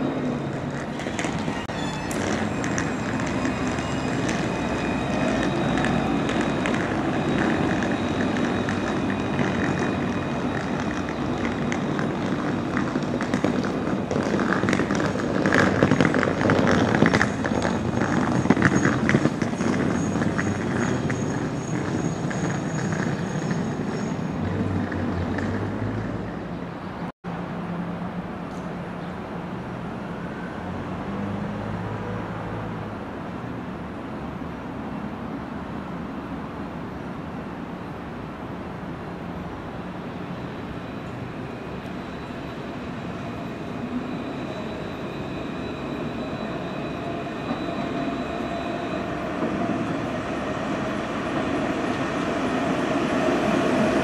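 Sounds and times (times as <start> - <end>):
road traffic: 0.0 - 54.0
tram running along track: 0.0 - 54.0
thin high tones: 40.2 - 51.8.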